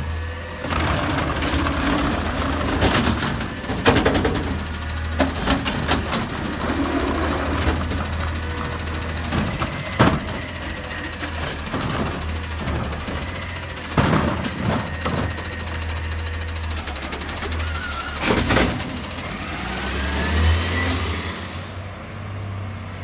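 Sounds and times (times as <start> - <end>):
garbage truck engine idling: 0.0 - 20.5
hydraulic arm lifting: 0.6 - 21.9
metal clanks and thumps: 0.9 - 15.6.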